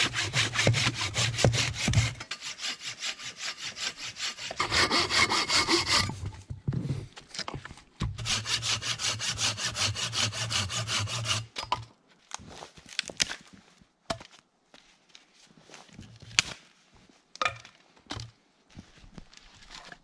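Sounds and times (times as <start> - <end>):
hand saw cutting wood: 0.0 - 6.3, 8.2 - 11.6.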